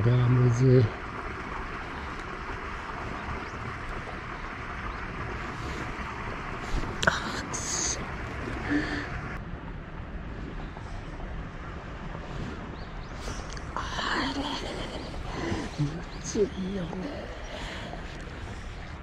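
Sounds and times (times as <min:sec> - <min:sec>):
wind on microphone: 0:00.0 - 0:19.0.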